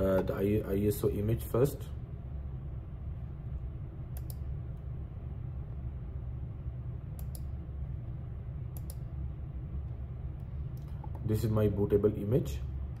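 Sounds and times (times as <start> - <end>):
low room hum: 0.0 - 13.0
computer mouse clicks: 4.1 - 4.5, 7.1 - 7.6, 8.7 - 9.1.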